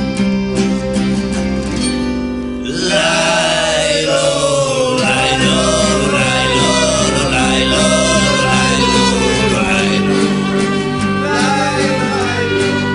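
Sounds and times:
strummed guitar chords: 0.0 - 12.9
person singing: 2.6 - 12.9.

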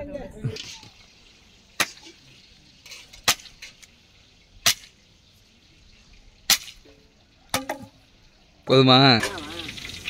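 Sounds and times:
machete chopping bamboo: 6.5 - 6.8.

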